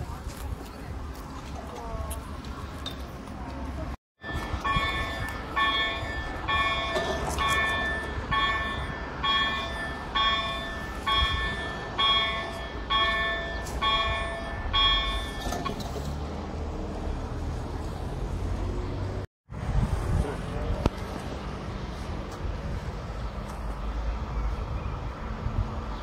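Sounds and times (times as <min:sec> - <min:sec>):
level-crossing warning bell: 0:04.2 - 0:15.9.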